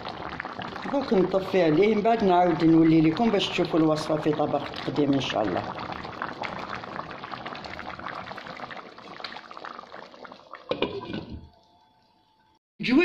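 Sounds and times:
stew bubbling in a pan: 0:00.0 - 0:11.7
lid put on pan: 0:10.7 - 0:11.5.

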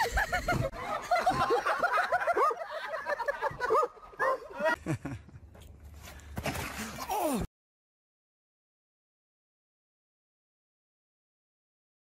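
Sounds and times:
people laughing: 0:00.0 - 0:05.5.

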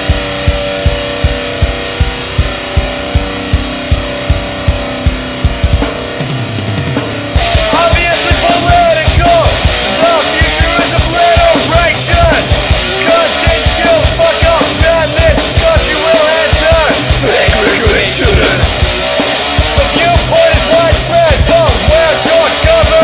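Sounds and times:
heavy metal band: 0:00.0 - 0:23.0
high repeating melodic line: 0:17.2 - 0:18.9.

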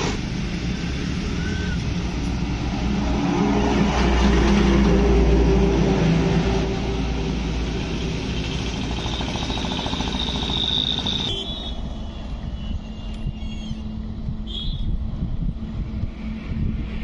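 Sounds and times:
heavy truck driving past: 0:00.0 - 0:12.1
road traffic: 0:00.0 - 0:17.0.

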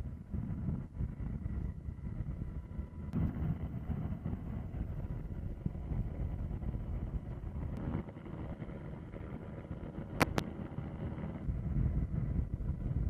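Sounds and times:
wind buffeting microphone: 0:00.0 - 0:13.0
sharp clicks: 0:10.2 - 0:10.5.

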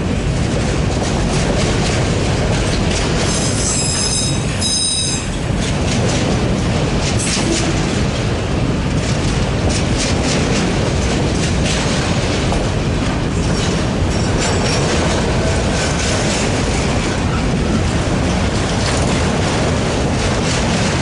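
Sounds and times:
freight train rolling past: 0:00.0 - 0:21.0
wheels clicking over track: 0:04.4 - 0:21.0.

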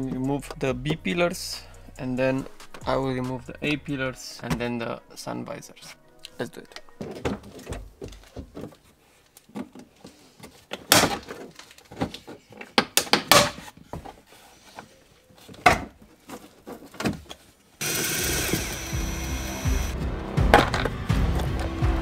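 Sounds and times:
background music: 0:00.0 - 0:08.9, 0:17.8 - 0:22.0.

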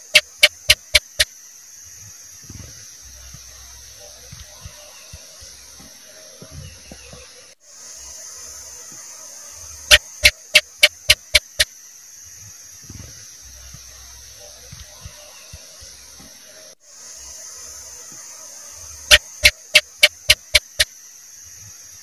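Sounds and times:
gecko chirping: 0:00.0 - 0:01.3, 0:09.9 - 0:11.7, 0:19.1 - 0:20.9
steady background hiss: 0:00.0 - 0:22.0.

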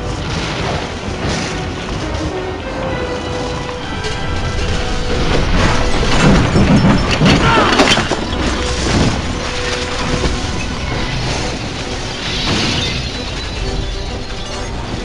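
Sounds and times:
dramatic film music: 0:00.0 - 0:15.0
crashing shattering debris: 0:03.8 - 0:15.0.

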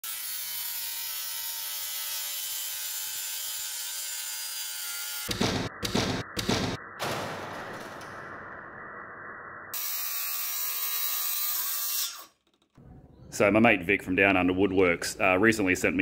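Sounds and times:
circular saw cutting wood: 0:00.0 - 0:05.3, 0:09.8 - 0:12.6
loud hits: 0:05.3 - 0:08.8.

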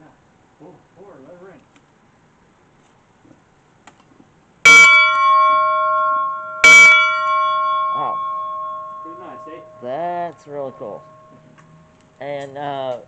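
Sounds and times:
brass locomotive bell ringing: 0:04.7 - 0:11.9.

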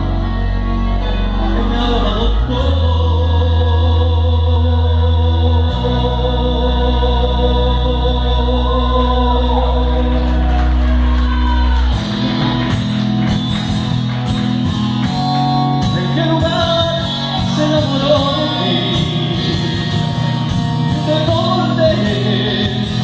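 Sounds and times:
backing track over pa system: 0:00.0 - 0:23.0
man singing into microphone: 0:00.9 - 0:10.8, 0:15.8 - 0:23.0.

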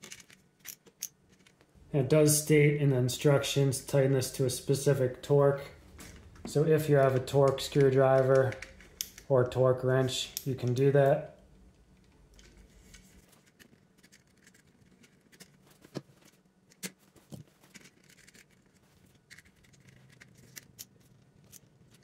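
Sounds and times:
wire and plastic clicks and scrapes: 0:00.0 - 0:01.7, 0:05.9 - 0:09.3, 0:11.7 - 0:22.0.

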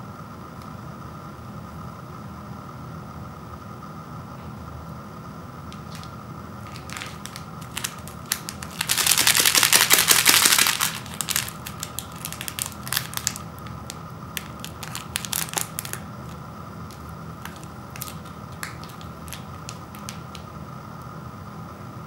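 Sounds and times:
foil packet crinkling: 0:05.7 - 0:20.5.

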